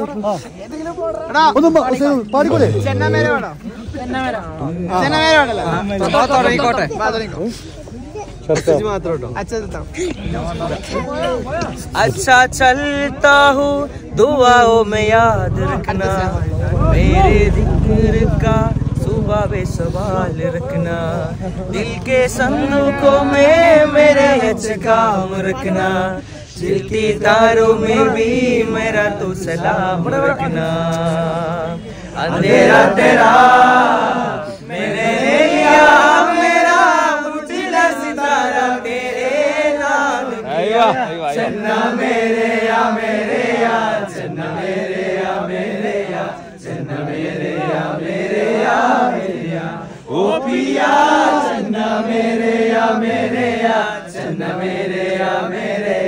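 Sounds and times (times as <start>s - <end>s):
men singing together: 11.8s - 56.0s.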